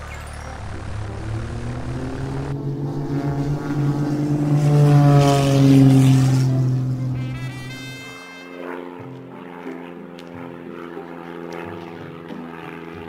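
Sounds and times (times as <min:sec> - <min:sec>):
propeller plane engine passing: 0:00.3 - 0:13.0.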